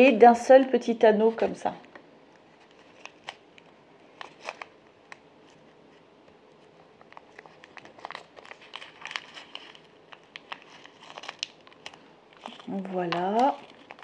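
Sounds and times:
plastic bag crinkling: 2.4 - 5.8, 6.6 - 14.0.

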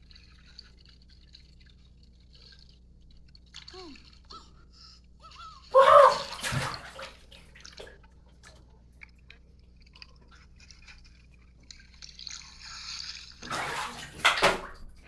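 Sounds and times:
water splashing and rushing: 6.0 - 8.0, 13.4 - 14.8
underwater drips and bubbling clicks: 7.6 - 12.1.

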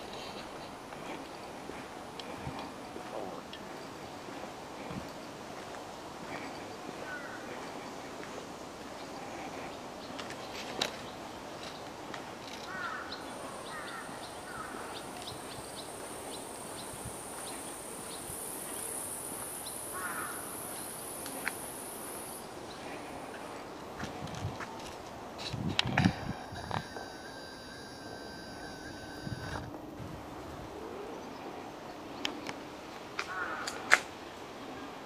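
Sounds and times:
high steady insect buzz: 12.5 - 23.1, 25.9 - 29.8.

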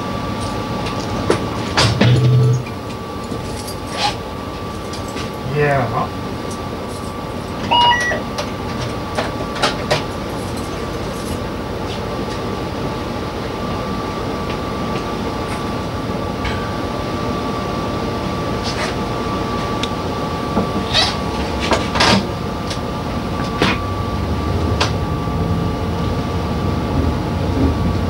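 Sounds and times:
diesel train engine humming: 0.0 - 28.0
two-note electronic beep: 7.6 - 8.3.

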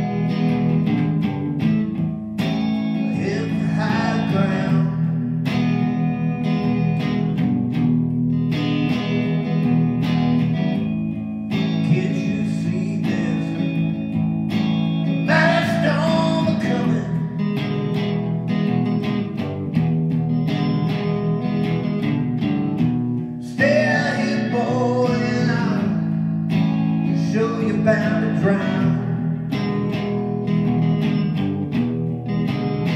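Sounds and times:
blues-rock electric guitar: 0.0 - 32.9
man singing: 3.1 - 5.3, 11.8 - 14.0, 15.2 - 17.4, 23.4 - 26.2, 27.1 - 29.8.

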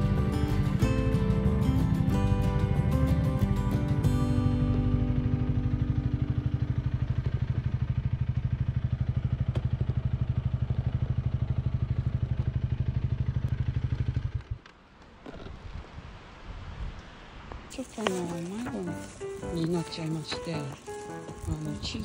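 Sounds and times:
motorcycle engine idling: 0.0 - 14.6.

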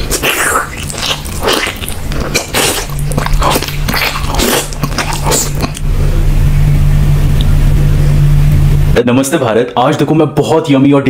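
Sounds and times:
man biting and chewing meat: 0.0 - 6.4
steady low hum: 0.0 - 10.4.

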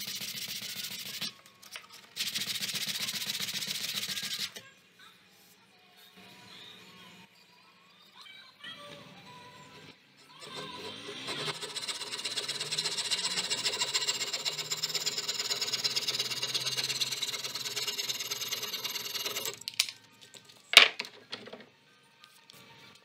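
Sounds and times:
hand saw cutting wood: 10.4 - 19.6.

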